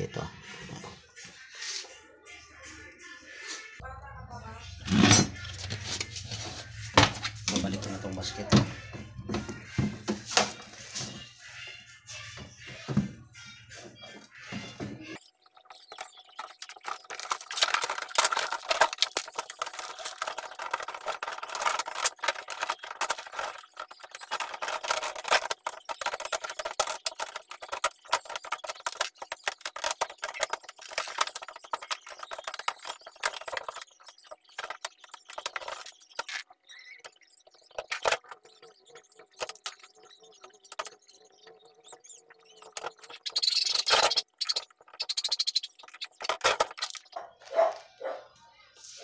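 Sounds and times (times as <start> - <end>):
plastic parts rattling and clicking: 15.2 - 47.8.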